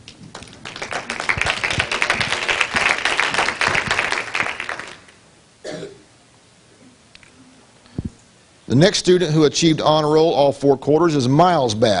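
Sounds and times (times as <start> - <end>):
audience applauding: 0.2 - 5.2.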